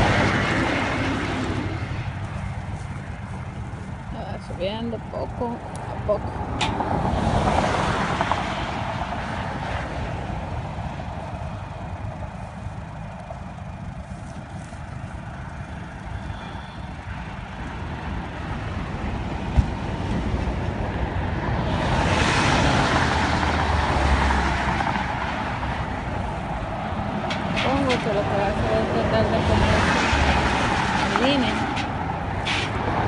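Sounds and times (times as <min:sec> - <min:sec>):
tow truck running: 0:00.0 - 0:33.0
winch hauling: 0:09.4 - 0:20.7, 0:24.6 - 0:33.0.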